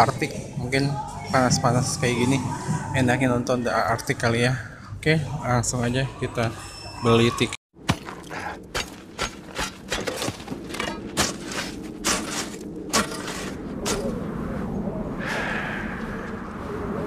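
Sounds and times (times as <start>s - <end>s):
hand tool chopping frozen snow: 7.9s - 14.1s.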